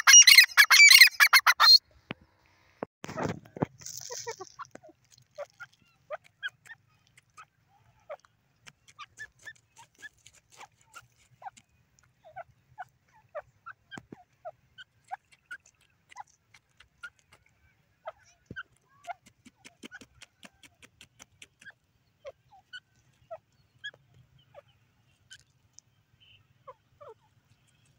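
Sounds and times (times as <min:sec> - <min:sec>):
bird clucking softly: 0:03.1 - 0:25.6
bird feet scraping soil: 0:08.6 - 0:12.2.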